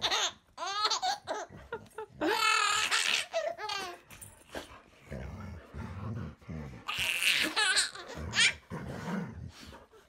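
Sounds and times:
baby laughing: 0:00.0 - 0:04.0, 0:06.9 - 0:08.6.

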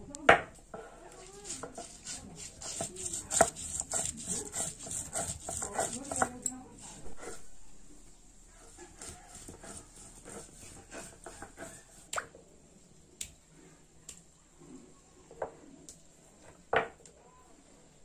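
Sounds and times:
paste squishing and scraping on stone: 0:01.4 - 0:07.4, 0:08.6 - 0:12.2.

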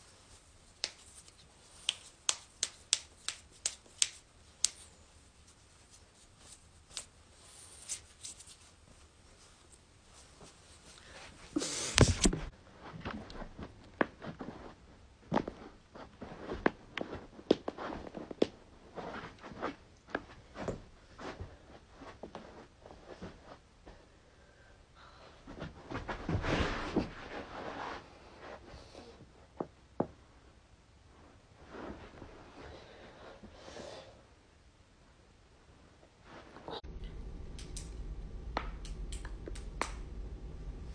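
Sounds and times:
knuckles cracking: 0:00.8 - 0:04.9.

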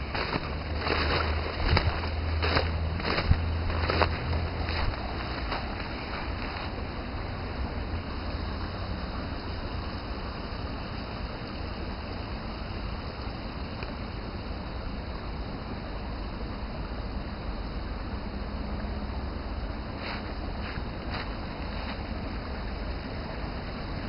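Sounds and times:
steady low rumbling: 0:00.0 - 0:10.7.

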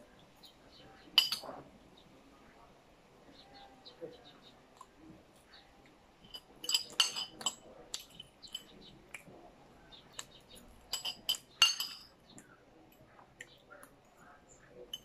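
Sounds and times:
fork clinking on a plate: 0:01.2 - 0:01.6, 0:06.2 - 0:09.2, 0:10.1 - 0:12.2.

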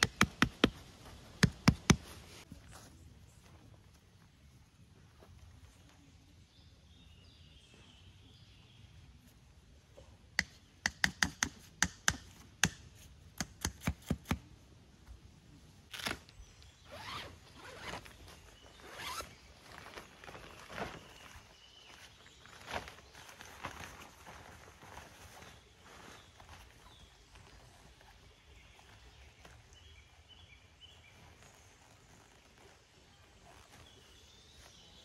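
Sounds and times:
tent zipper rasping: 0:16.9 - 0:19.9, 0:31.1 - 0:34.2.

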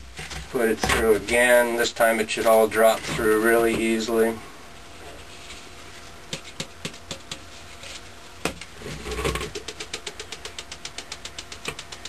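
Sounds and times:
quick tapping on colander: 0:09.3 - 0:12.0.

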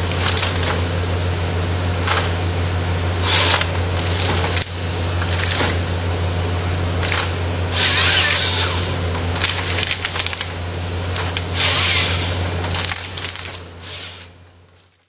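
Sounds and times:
wood cracking and splintering: 0:00.0 - 0:00.9, 0:03.2 - 0:05.8, 0:07.0 - 0:15.0
diesel engine droning: 0:00.0 - 0:15.0.

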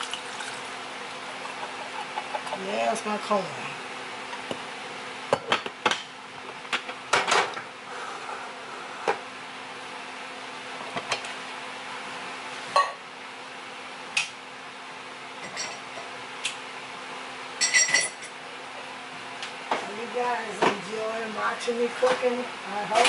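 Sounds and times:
steady low hum: 0:00.0 - 0:23.0
dishes and glassware clinking: 0:17.6 - 0:18.4.

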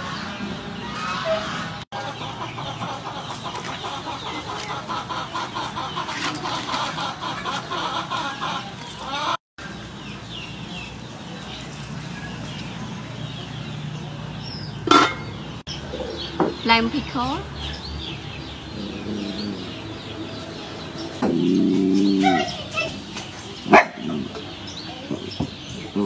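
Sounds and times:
hens clucking: 0:00.0 - 0:09.4.

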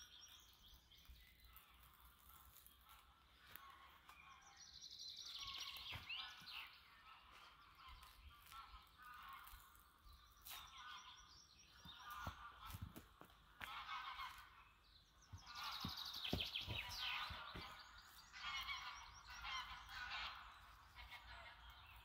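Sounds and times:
birdsong with trilling calls: 0:00.0 - 0:22.0
knife peeling bark: 0:01.6 - 0:03.1.

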